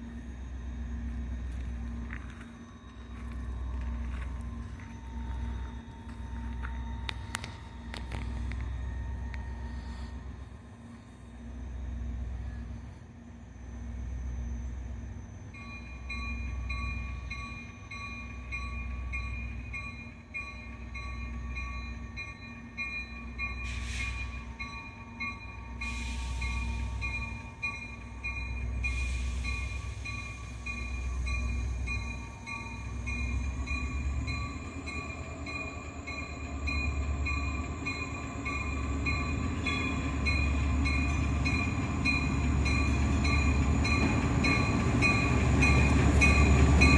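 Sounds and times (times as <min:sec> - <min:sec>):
diesel locomotive engine rumble: 0:00.0 - 0:46.9
locomotive bell ringing: 0:13.6 - 0:46.9.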